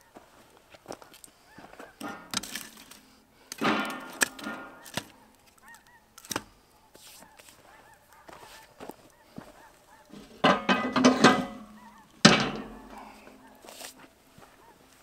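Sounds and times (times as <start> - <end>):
distant honking animal cries: 7.2 - 15.0
wood knocking: 10.4 - 13.5.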